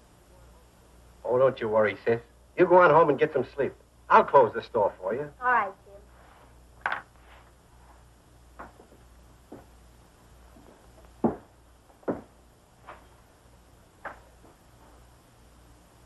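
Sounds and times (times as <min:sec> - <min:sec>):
film soundtrack hiss and hum: 0:00.0 - 0:16.0
soft knocks and thuds: 0:10.6 - 0:13.0.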